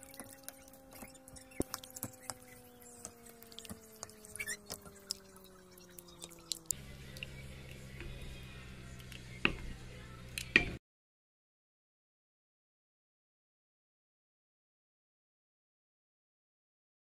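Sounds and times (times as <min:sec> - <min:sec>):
wooden spoon stirring thick sauce: 0:00.0 - 0:08.2
faint steady hum: 0:00.0 - 0:10.8
low hum: 0:00.0 - 0:10.8.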